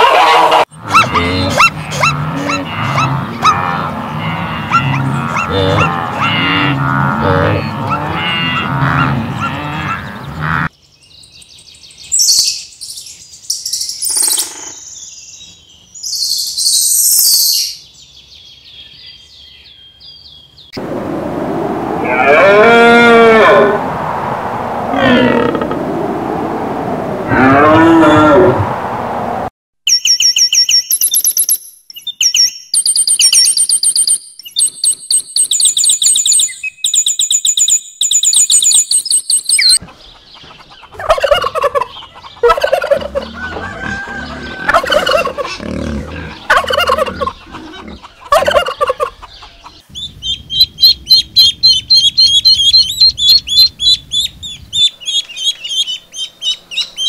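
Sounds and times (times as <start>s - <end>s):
turkey gobbling: 0.0s - 3.9s, 4.5s - 10.6s, 39.7s - 56.8s
small bird chirps and trills: 10.7s - 20.8s, 29.9s - 41.0s
ducklings peeping: 39.6s - 57.0s.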